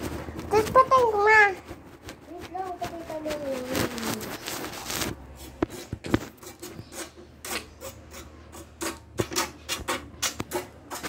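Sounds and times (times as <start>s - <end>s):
phone microphone handling noise: 0.0s - 6.4s.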